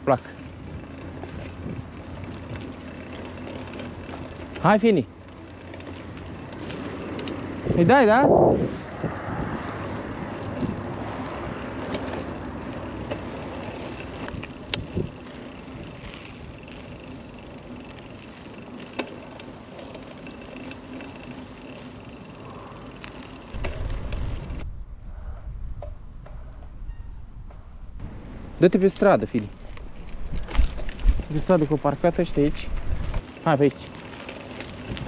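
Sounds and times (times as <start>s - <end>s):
bike tyres rolling: 0.0s - 35.0s
low rumble: 23.5s - 28.6s.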